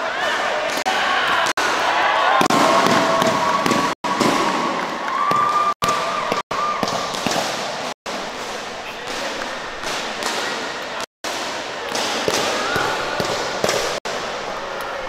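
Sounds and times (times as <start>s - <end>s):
crowd of voices: 8.1s - 15.0s.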